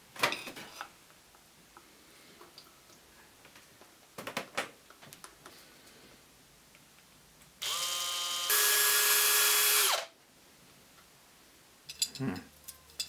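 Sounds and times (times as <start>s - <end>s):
cordless drill boring plastic: 7.6s - 10.1s.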